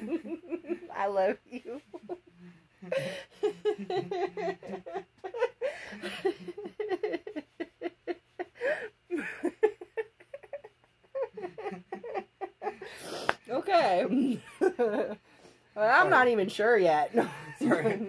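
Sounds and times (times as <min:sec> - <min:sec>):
woman laughing hard: 0:02.8 - 0:12.9, 0:17.2 - 0:18.0.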